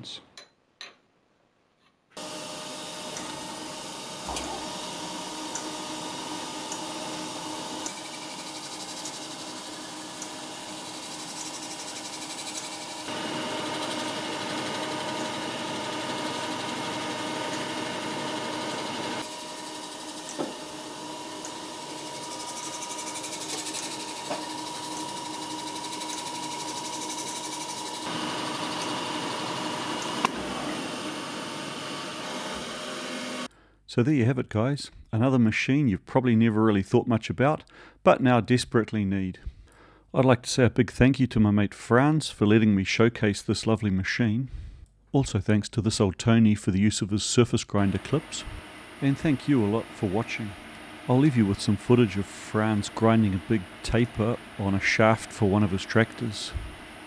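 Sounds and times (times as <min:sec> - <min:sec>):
grinder wheel grinding steel: 0:02.2 - 0:33.5.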